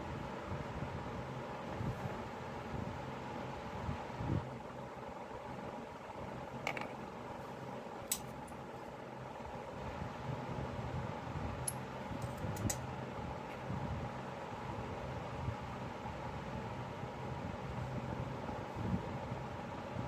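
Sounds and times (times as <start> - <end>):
fan hum: 0.0 - 20.0
scissors clicking and snipping: 8.1 - 8.3.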